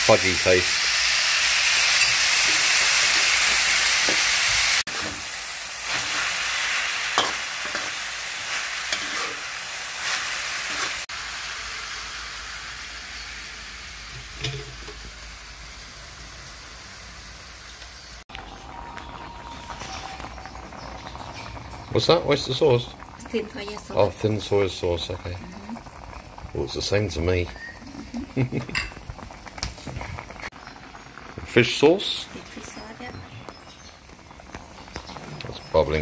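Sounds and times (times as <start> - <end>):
pork sizzling in a wok: 0.0 - 36.0
metal spatula scraping a pan: 4.9 - 6.4, 7.1 - 11.1.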